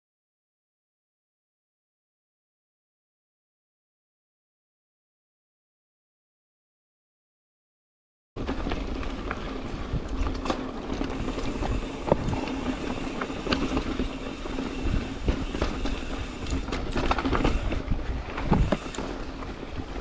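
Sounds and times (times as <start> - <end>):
bike rattling and clattering: 8.4 - 20.0
wind on microphone: 11.0 - 20.0.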